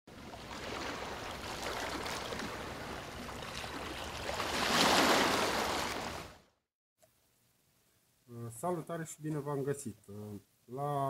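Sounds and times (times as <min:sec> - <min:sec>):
rushing water: 0:00.1 - 0:06.4.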